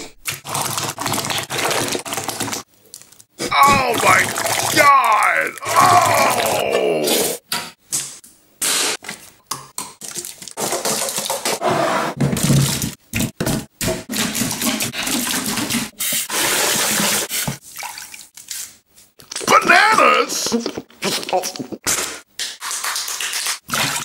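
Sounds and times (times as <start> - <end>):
water splashing in a sink: 0.1 - 7.2, 9.0 - 11.6, 12.2 - 19.4, 21.9 - 24.0.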